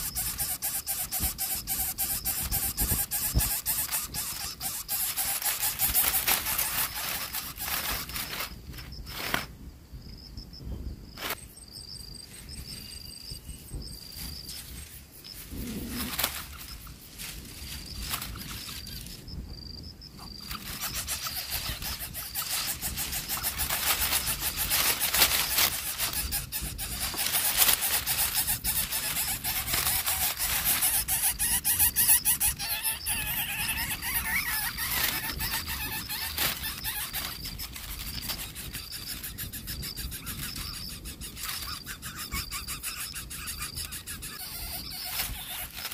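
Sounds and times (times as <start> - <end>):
nestlings raspy begging buzz: 0.0 - 9.3, 20.2 - 45.9.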